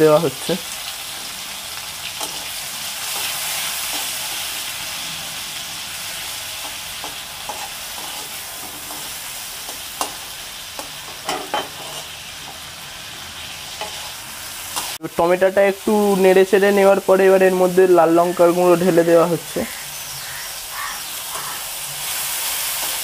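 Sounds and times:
tomatoes sizzling in oil: 0:00.0 - 0:23.0
metal spatula scraping pan: 0:06.6 - 0:10.2, 0:10.8 - 0:12.6.

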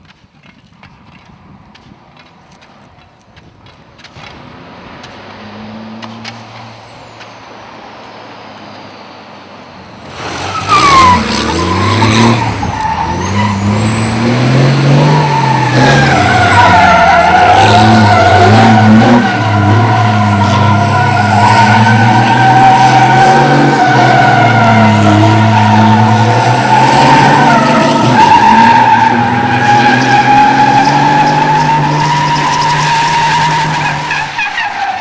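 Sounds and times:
truck engine revving: 0:10.0 - 0:34.9
tyres squealing: 0:10.1 - 0:35.0.

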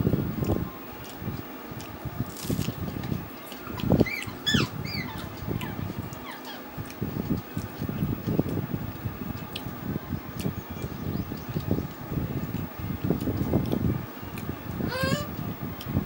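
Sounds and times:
wet squelches of eating by hand: 0:00.1 - 0:16.0
animal chirps: 0:03.8 - 0:06.6.

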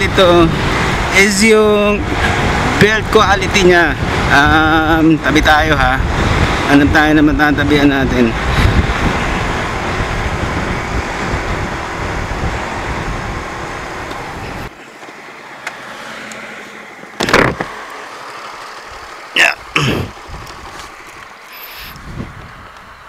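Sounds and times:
wind noise: 0:00.0 - 0:14.7, 0:19.6 - 0:23.0
motorcycle engine: 0:08.1 - 0:22.0.

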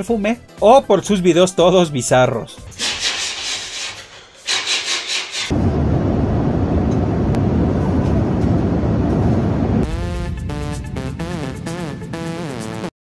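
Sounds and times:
airliner cabin rumble: 0:05.5 - 0:12.2.

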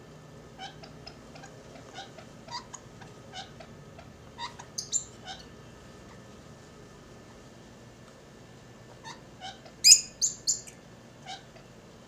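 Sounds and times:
lovebirds chirping: 0:04.4 - 0:05.4, 0:09.8 - 0:10.8.

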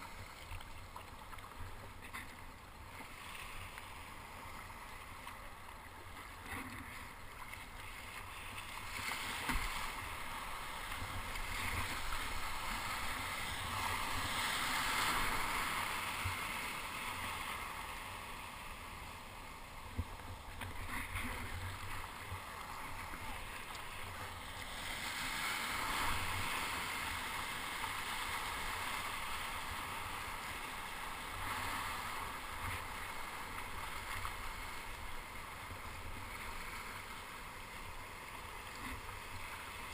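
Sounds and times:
surf and whitewater splashing: 0:00.0 - 0:39.9.

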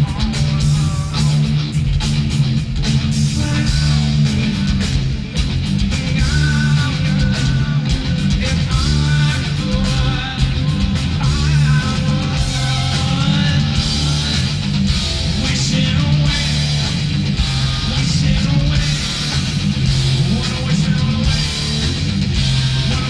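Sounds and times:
heavy rock band playing live: 0:00.0 - 0:23.0.

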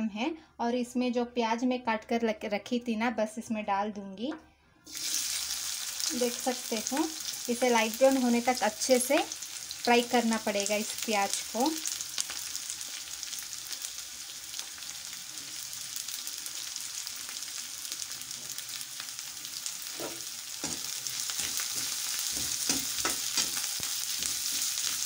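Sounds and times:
onions sizzling in hot oil: 0:04.9 - 0:25.0
metal spatula scraping pan: 0:19.8 - 0:25.0.

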